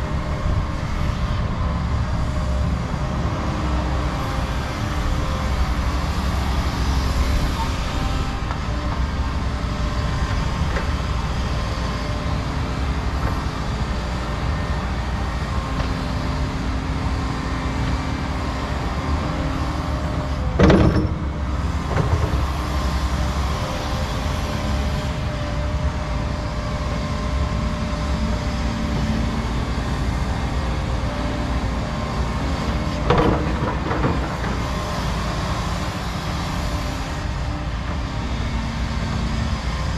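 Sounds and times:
excavator diesel engines droning: 0.0 - 39.9.

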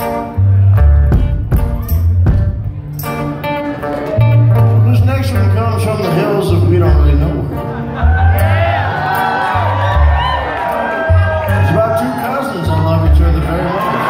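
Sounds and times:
acoustic string band playing: 0.0 - 14.0
audience whooping: 7.9 - 14.0.

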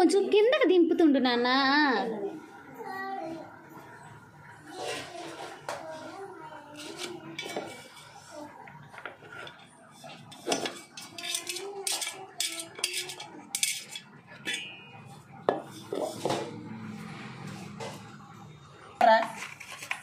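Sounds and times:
metal clinks and scrapes: 9.4 - 15.0.

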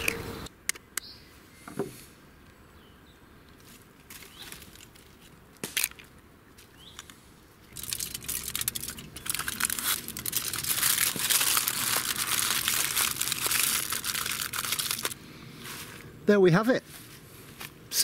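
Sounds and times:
aluminium foil crinkling: 7.7 - 15.2.

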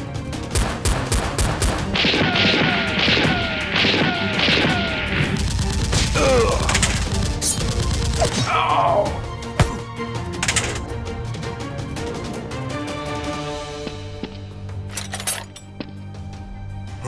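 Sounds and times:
background music: 0.0 - 17.0
gunfire sound effects: 0.5 - 8.4.

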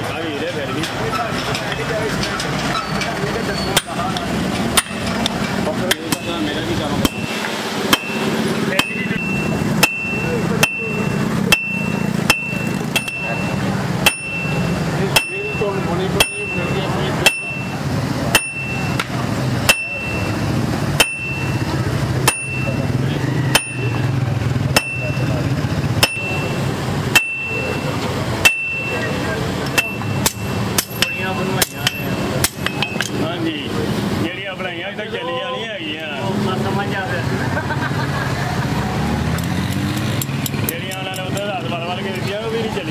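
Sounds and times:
hammer striking blade on anvil: 3.6 - 24.1, 24.7 - 33.2.

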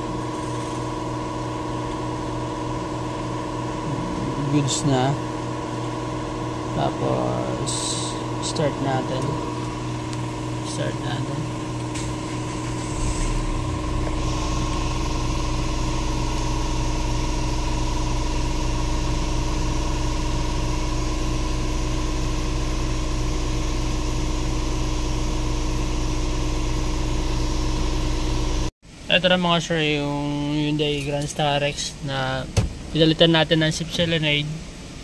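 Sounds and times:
engine starting and idling: 11.9 - 20.4.

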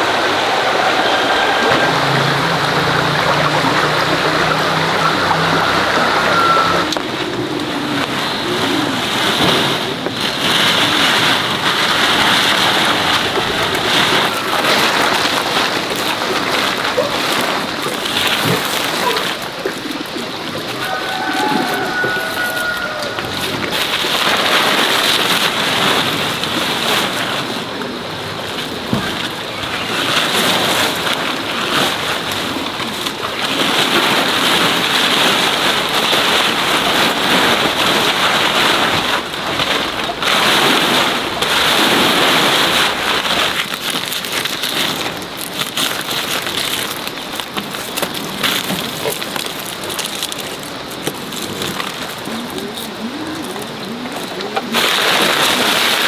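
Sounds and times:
plastic sacks rustling: 0.0 - 56.0.

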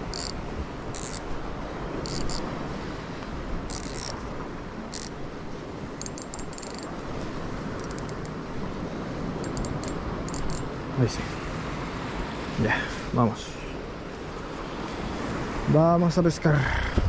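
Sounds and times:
surf on rocky shore: 0.0 - 17.0
wind: 0.0 - 17.0
light mechanical clicks: 6.0 - 7.1, 7.8 - 8.4, 9.4 - 10.6.

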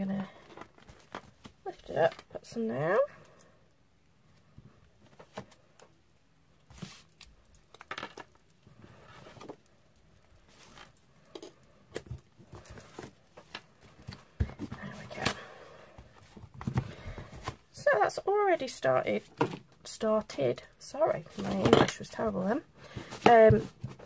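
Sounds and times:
paper rustling: 6.7 - 7.2.

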